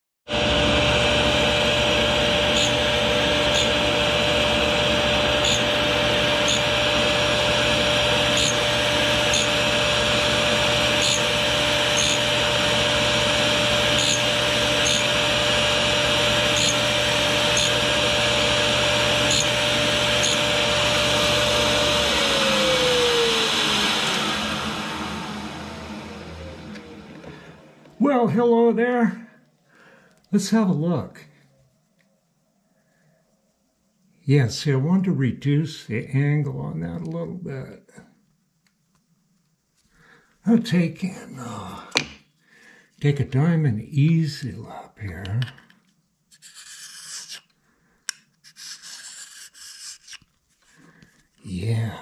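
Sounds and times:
grinder motor whining: 0.3s - 28.0s
grinder spinning down: 0.3s - 28.0s.

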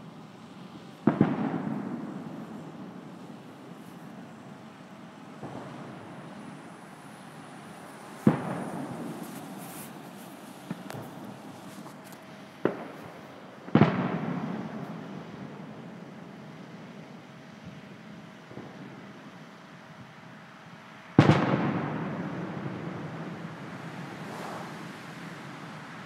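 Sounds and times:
firework shells bursting: 1.0s - 15.0s.

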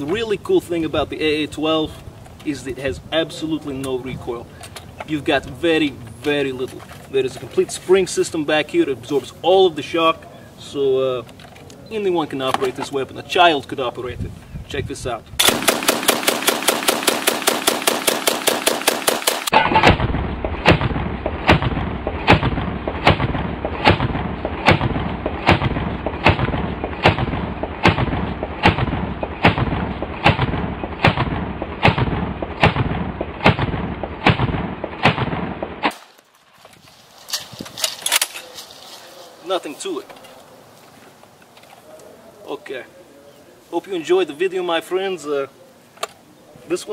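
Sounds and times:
automatic shotgun firing: 15.4s - 36.1s
slow-motion gunshot booms: 19.7s - 36.0s.

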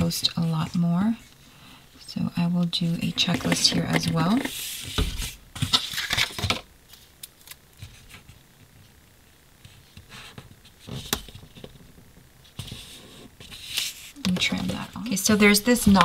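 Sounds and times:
paper rustling: 3.2s - 8.4s, 12.4s - 16.0s.

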